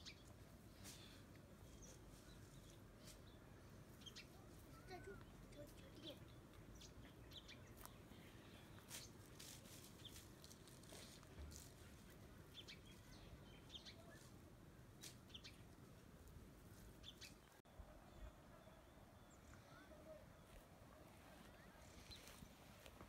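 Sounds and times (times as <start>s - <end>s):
branches rustling: 7.7s - 17.6s, 20.4s - 23.0s
faint bird chirps: 17.0s - 22.6s.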